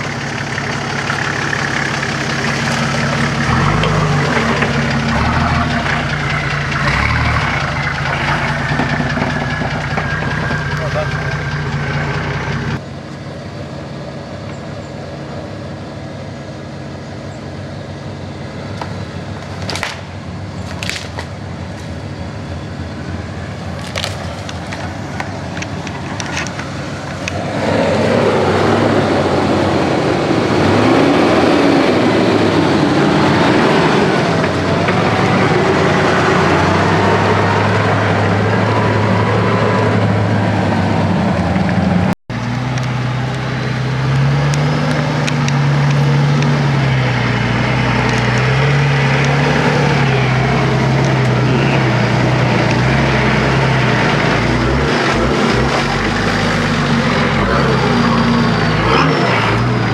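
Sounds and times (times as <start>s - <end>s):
vehicle engine revving in mud: 0.0s - 12.8s, 25.8s - 59.9s.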